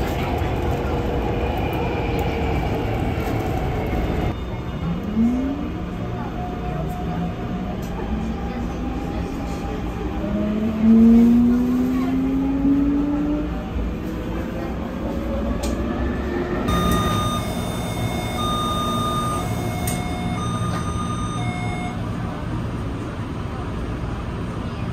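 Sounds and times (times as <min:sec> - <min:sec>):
train running rumble: 0:00.0 - 0:24.9
door chime beeping: 0:16.7 - 0:22.0
traction motors whining: 0:16.7 - 0:22.0.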